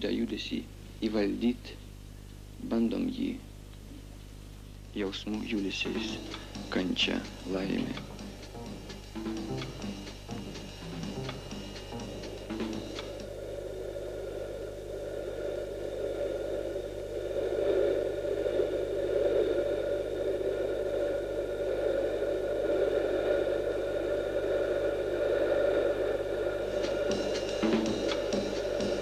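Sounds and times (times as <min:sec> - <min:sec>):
steady droning: 0:05.3 - 0:13.6, 0:26.6 - 0:29.0.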